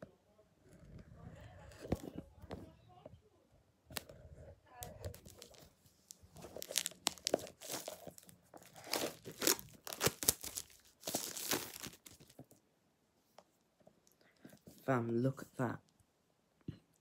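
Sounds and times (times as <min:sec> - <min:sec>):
plastic wrap crinkling and tearing: 0:05.1 - 0:12.5.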